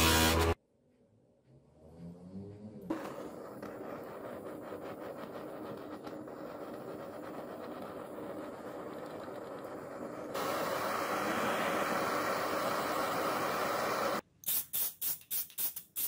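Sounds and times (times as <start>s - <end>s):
torch flame hissing: 2.9s - 14.2s.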